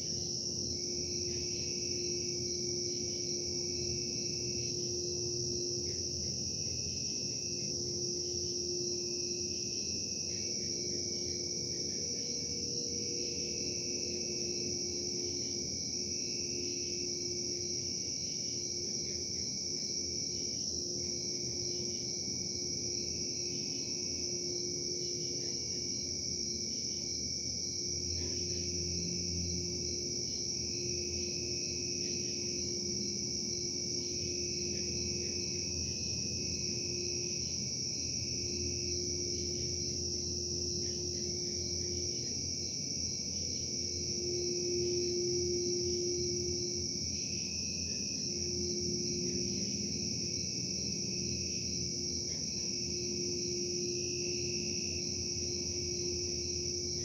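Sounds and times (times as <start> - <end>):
high-pitched whine: 27.8 - 57.0
machinery low hum: 27.9 - 57.0.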